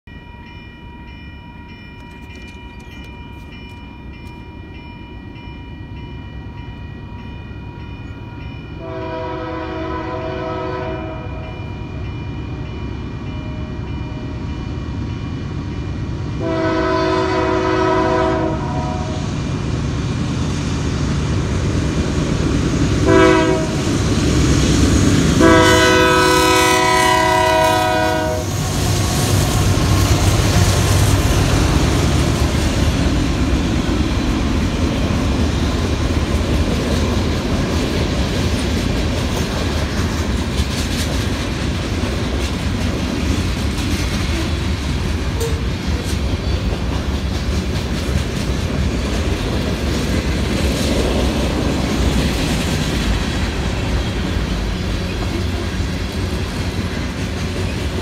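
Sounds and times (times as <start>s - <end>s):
crossing bell ringing: 0.0s - 18.3s, 44.2s - 47.3s
train engine and wheel rumble: 0.0s - 58.0s
locomotive air horn: 8.8s - 11.6s, 16.4s - 19.2s, 23.0s - 23.9s, 25.4s - 28.6s.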